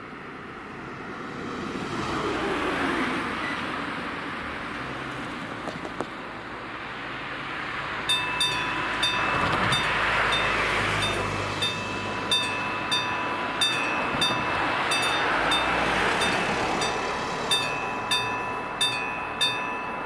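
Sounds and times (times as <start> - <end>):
car tyres on wet road: 0.1 - 18.0
level crossing warning bell ringing: 8.0 - 20.0.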